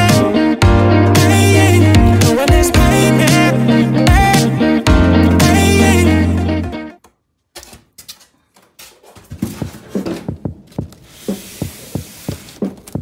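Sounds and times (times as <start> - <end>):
kick drum thumps: 9.3 - 13.0.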